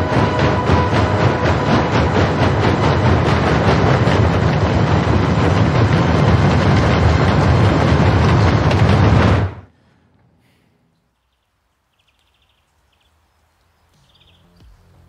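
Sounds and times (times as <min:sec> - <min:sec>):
loud dense rumbling: 0:00.0 - 0:09.8.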